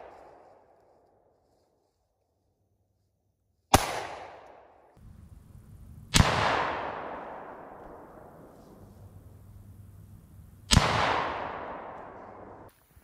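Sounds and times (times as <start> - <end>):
rifle shots with echo: 3.7 - 12.7.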